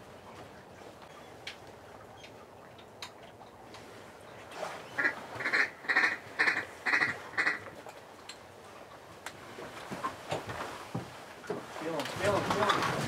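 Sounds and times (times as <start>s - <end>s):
duck quacks: 5.0s - 7.6s.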